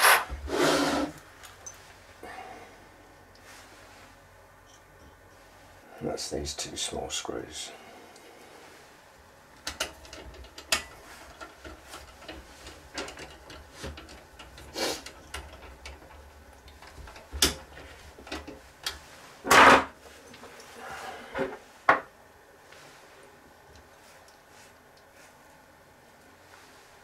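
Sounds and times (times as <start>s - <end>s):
metal clunk and scrape: 17.1s - 20.0s.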